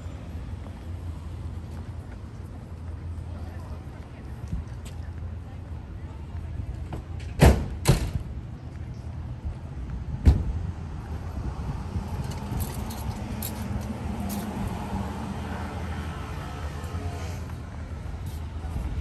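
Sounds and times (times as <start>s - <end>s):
cars driving past: 9.8s - 19.0s.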